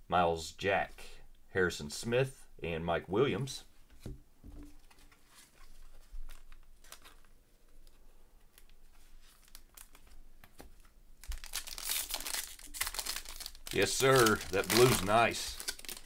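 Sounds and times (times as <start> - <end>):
plastic crinkling: 4.7 - 16.0
trading cards rustling and clicking: 4.7 - 16.0.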